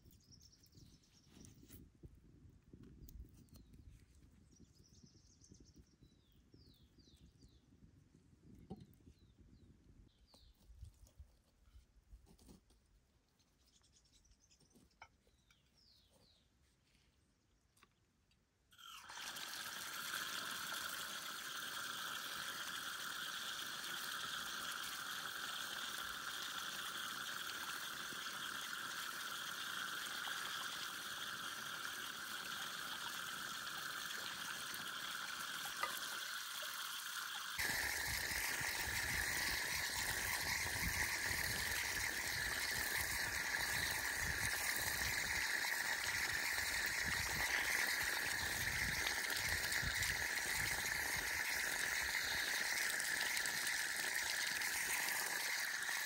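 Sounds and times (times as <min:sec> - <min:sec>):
running water rushing: 0:18.8 - 0:56.0.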